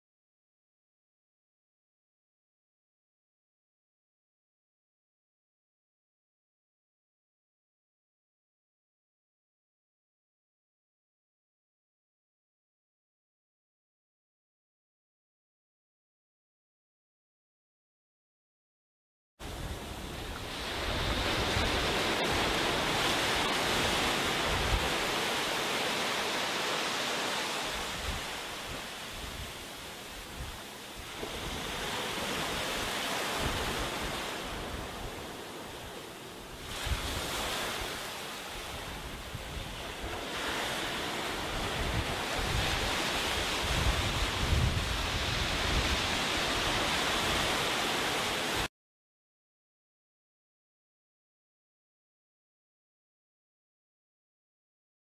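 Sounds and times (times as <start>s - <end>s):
waves washing up a beach: 19.4s - 48.7s
wind buffeting microphone: 19.4s - 48.7s.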